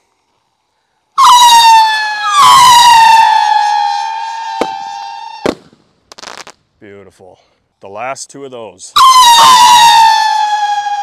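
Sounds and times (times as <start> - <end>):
firework cracks: 1.2 - 6.6
whistling firework rockets: 1.2 - 6.6, 9.0 - 11.0.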